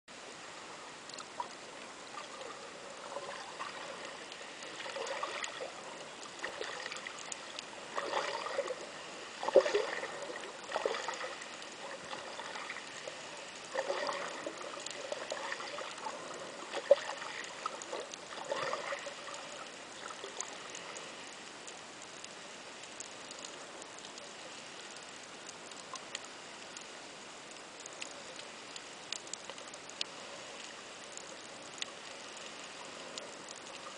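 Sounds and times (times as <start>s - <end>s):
bubbling and churning water: 0.1s - 33.9s
muffled underwater hiss: 0.1s - 33.9s
small clicks: 1.0s - 1.6s, 3.2s - 8.8s, 18.9s - 33.9s.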